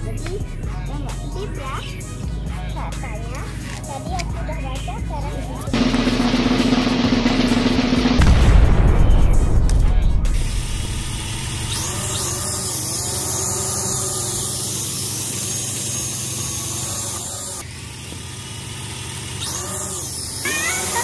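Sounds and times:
toy drone propellers whirring: 0:00.0 - 0:05.8, 0:11.1 - 0:21.0.

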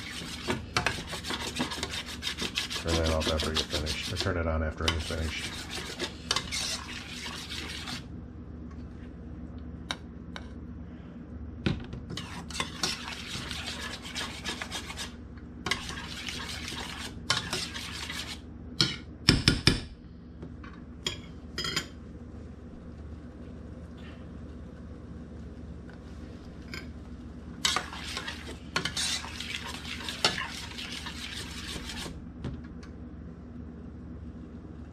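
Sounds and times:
spoon scraping a metal saucepan: 0:00.0 - 0:08.1, 0:12.1 - 0:19.0, 0:27.6 - 0:32.1.

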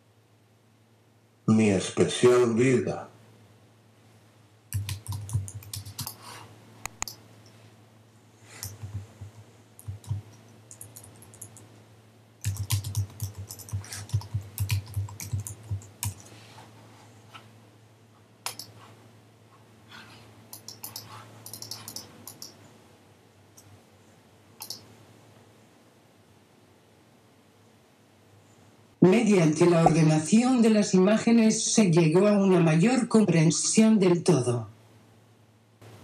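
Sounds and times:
faint low hum: 0:00.0 - 0:36.0
computer keyboard typing: 0:04.7 - 0:06.2, 0:08.6 - 0:11.7, 0:12.4 - 0:16.3, 0:18.4 - 0:18.7, 0:20.5 - 0:22.6, 0:24.6 - 0:24.8.

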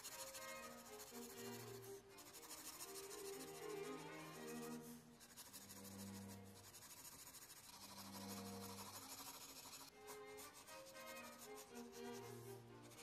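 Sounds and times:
pencil scratching on paper: 0:00.0 - 0:13.0
soft background music: 0:00.0 - 0:13.0.

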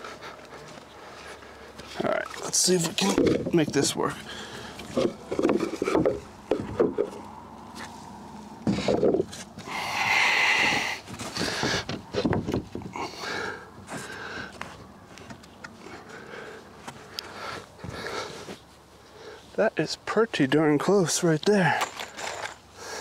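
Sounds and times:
plywood scraping against wood: 0:02.8 - 0:08.0, 0:08.6 - 0:09.7
man breathing: 0:04.2 - 0:05.0, 0:09.6 - 0:12.0, 0:12.9 - 0:14.8, 0:15.8 - 0:19.6, 0:21.8 - 0:23.0
wooden knocks and thumps: 0:04.9 - 0:07.2, 0:08.7 - 0:09.3, 0:11.4 - 0:13.0.

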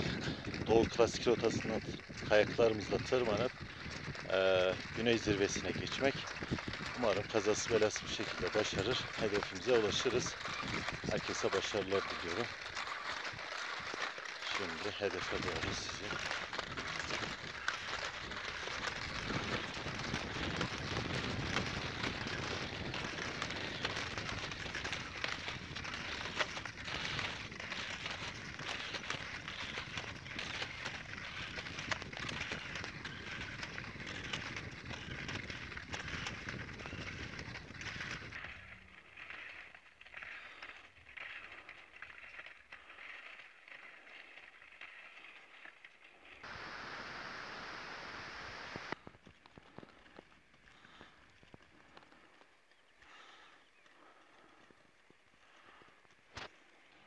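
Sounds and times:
skis scraping on snow: 0:00.0 - 0:51.2
steady hiss: 0:46.5 - 0:49.0.

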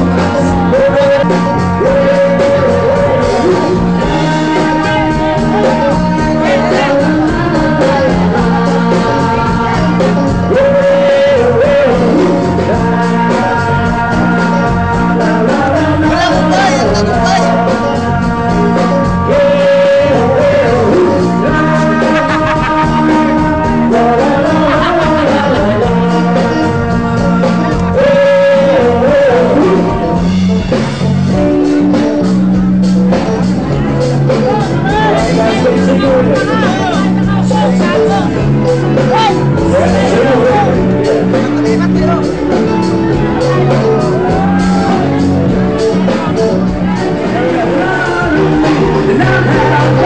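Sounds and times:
live rock band playing: 0:00.0 - 0:50.0
person singing: 0:00.0 - 0:50.0.

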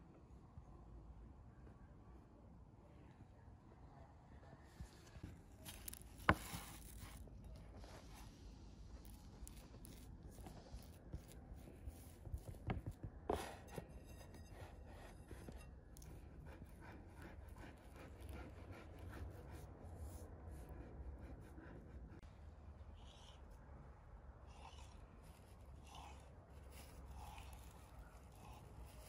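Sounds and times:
fingers rubbing butter on dough: 0:05.6 - 0:22.3, 0:24.5 - 0:29.0.

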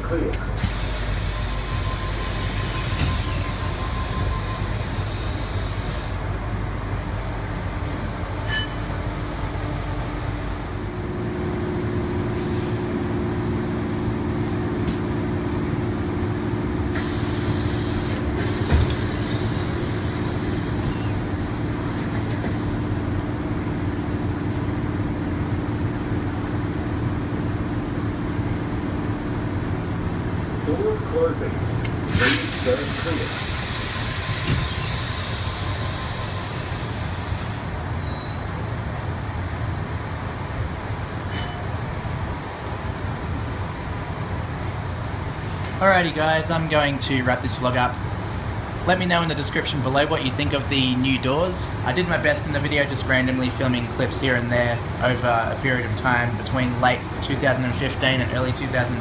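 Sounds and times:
train running rumble: 0:00.0 - 0:59.0
train doors hissing open: 0:00.5 - 0:06.2, 0:16.9 - 0:22.8, 0:31.9 - 0:38.7.

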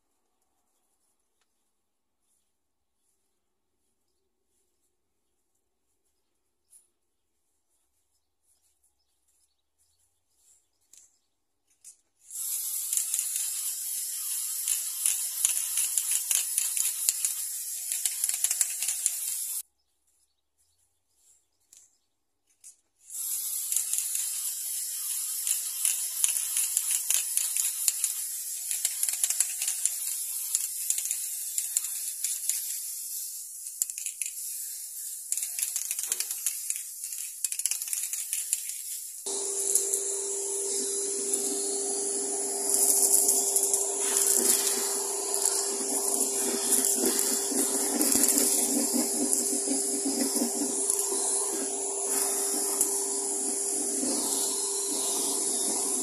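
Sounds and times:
spray paint can hissing: 0:11.7 - 0:19.6, 0:22.6 - 0:56.0
spray can clicks: 0:11.8 - 0:19.6, 0:23.3 - 0:39.1.

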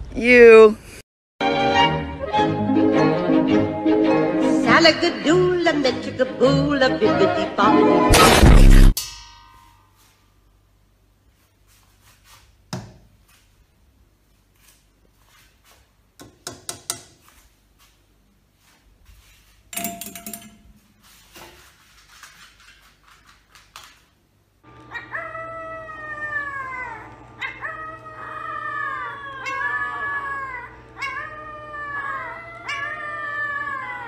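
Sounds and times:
puppy howling: 0:24.8 - 0:34.0.

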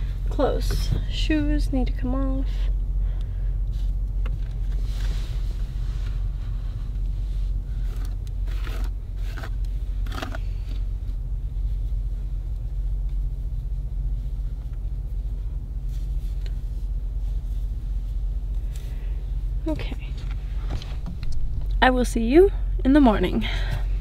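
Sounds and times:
low vehicle rumble: 0:00.0 - 0:24.0
rustling of hair and clothing: 0:10.9 - 0:22.3.

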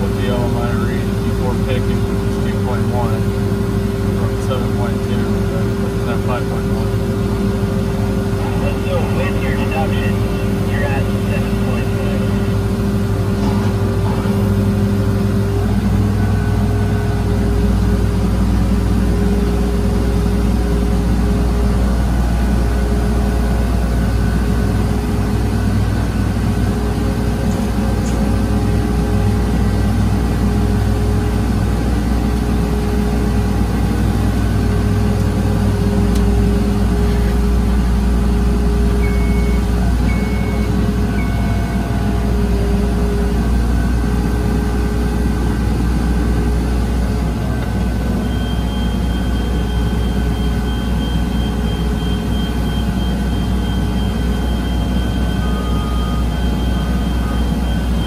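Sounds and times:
crane diesel engine running: 0:00.0 - 0:58.0
short high beeps: 0:39.0 - 0:41.8.

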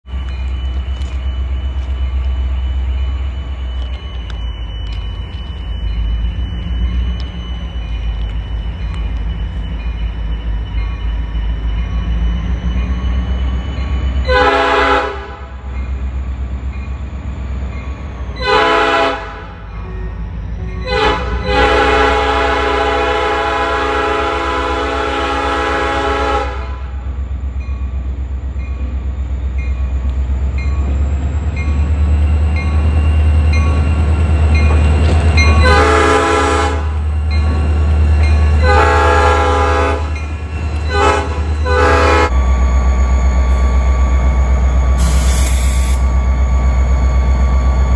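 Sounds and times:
air horn blasts: 0:14.3 - 0:15.6, 0:18.4 - 0:19.6, 0:20.8 - 0:27.0, 0:35.6 - 0:37.0, 0:38.6 - 0:40.0, 0:40.9 - 0:42.3.

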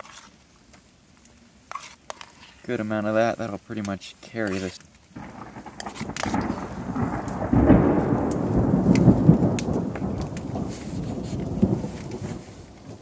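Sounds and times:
steady rain: 0:02.7 - 0:13.0
thunder rumbling: 0:05.2 - 0:13.0.

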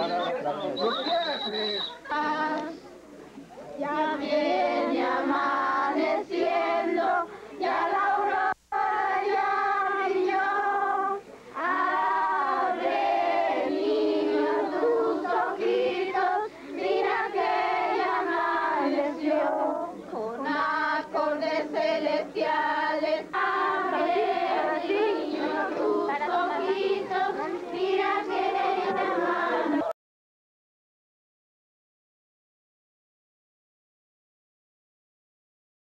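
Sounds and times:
women and children singing hymn: 0:02.0 - 0:03.0, 0:03.7 - 0:29.9.

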